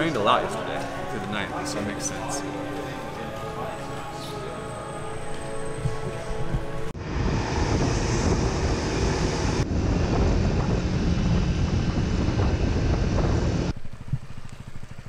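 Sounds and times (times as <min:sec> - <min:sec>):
road noise: 0:00.0 - 0:15.0
wind buffeting microphone: 0:05.7 - 0:15.0
motorbike engine: 0:07.6 - 0:15.0.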